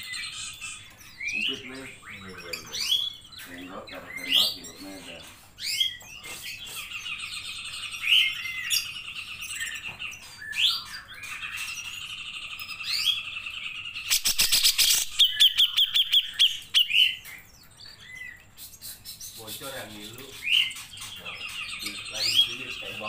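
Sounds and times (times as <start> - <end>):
bulbul singing trills and whistles: 0.0 - 23.0.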